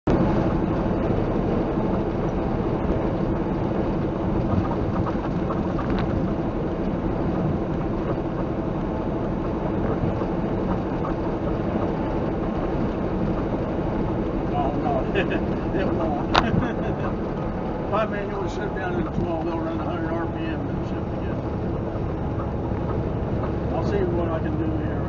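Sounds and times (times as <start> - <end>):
road noise inside cab: 0.0 - 25.0
truck engine drone: 0.0 - 25.0.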